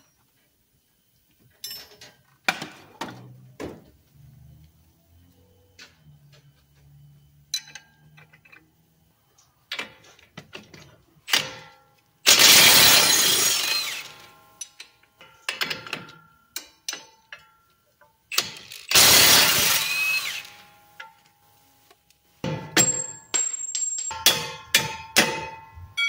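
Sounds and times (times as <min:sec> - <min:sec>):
impact wrench hammering: 0:22.4 - 0:23.4, 0:24.1 - 0:26.0
metal wrench clinks: 0:22.8 - 0:24.3.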